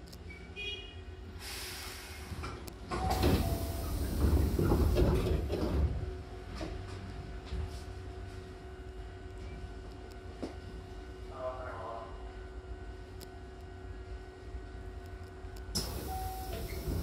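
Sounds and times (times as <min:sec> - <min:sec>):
train car hum: 0:00.0 - 0:17.0
door air hiss: 0:01.4 - 0:02.4, 0:15.8 - 0:17.0
train doors sliding open: 0:01.4 - 0:06.0, 0:15.7 - 0:17.0.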